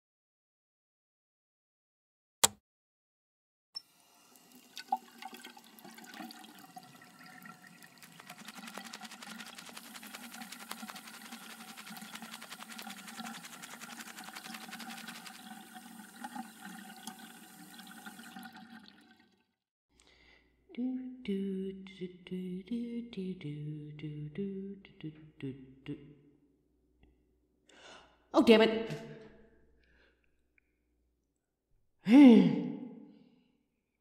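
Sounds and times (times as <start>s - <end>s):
water running in a bathroom: 3.8s - 19.6s.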